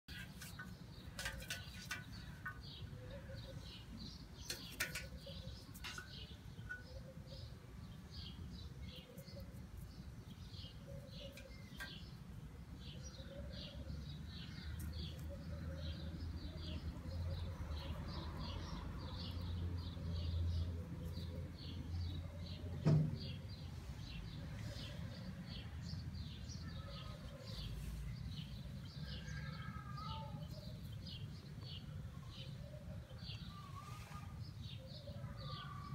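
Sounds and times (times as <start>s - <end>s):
sharp thump: 22.8s - 23.3s.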